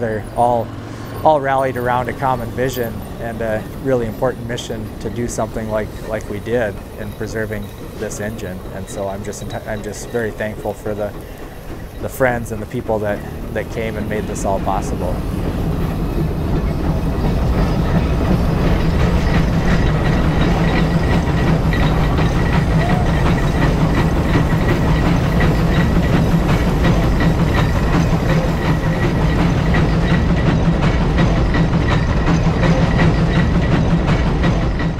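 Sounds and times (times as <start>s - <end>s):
steam engine exhaust chuffs: 0.0s - 34.9s
steam hissing: 0.0s - 34.9s.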